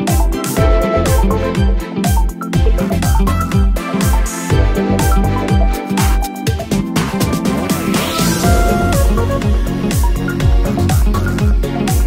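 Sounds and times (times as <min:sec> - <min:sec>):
electronic music with drum beat: 0:00.0 - 0:12.0.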